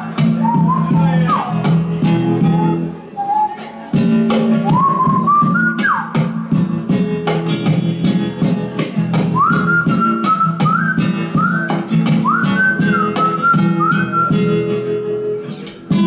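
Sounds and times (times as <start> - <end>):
strummed acoustic guitar: 0.0 - 16.0
man whistling a melody: 0.2 - 3.8, 4.5 - 6.5, 9.2 - 15.4.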